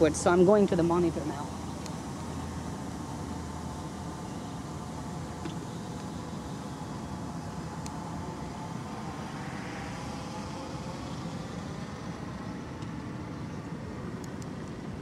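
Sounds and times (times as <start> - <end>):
drone propellers humming: 0.0 - 15.0.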